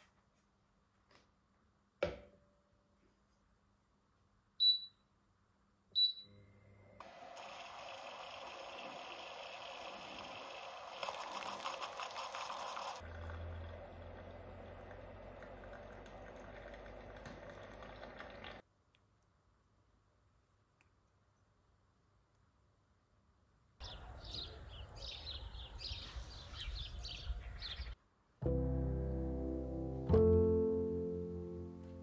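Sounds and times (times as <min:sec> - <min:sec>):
short beeps: 0:04.6 - 0:05.0, 0:06.0 - 0:06.4
coffee pouring into mug: 0:07.0 - 0:18.6
moka pot hissing and sputtering: 0:07.0 - 0:18.6.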